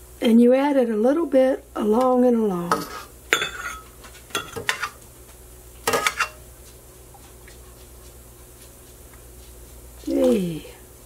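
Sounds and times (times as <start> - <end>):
low steady hum: 0.0 - 11.0
metal ladle clinking on pot: 2.7 - 3.8.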